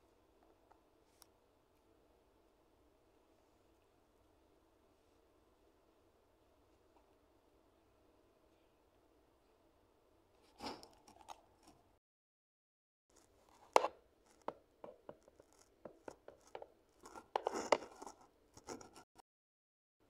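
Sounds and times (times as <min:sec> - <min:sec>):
handling clicks and taps: 0:13.6 - 0:19.0.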